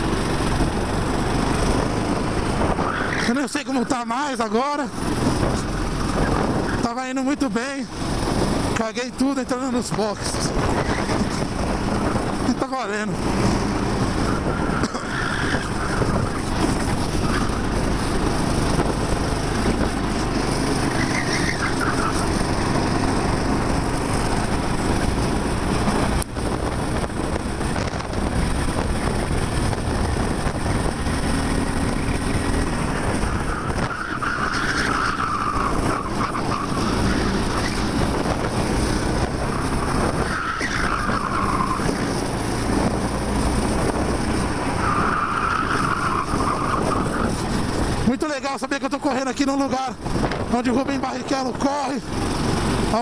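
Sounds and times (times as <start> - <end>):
kart engine running hard: 0.0 - 48.8, 49.4 - 53.0
tyre squeals: 2.8 - 4.4, 10.4 - 11.5, 14.2 - 17.7, 20.6 - 22.5, 31.9 - 38.0, 39.4 - 42.3, 44.6 - 47.6.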